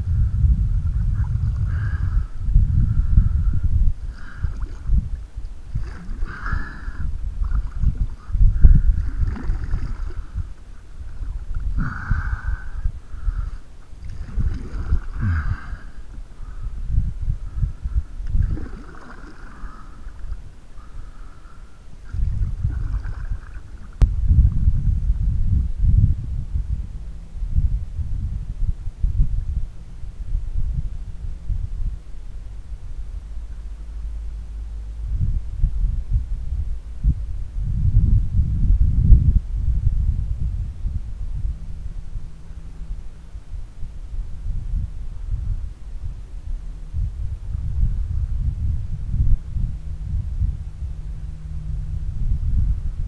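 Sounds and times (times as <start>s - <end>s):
wind buffeting microphone: 0.0s - 53.0s
paddle strokes through water: 4.0s - 16.6s, 17.4s - 24.0s.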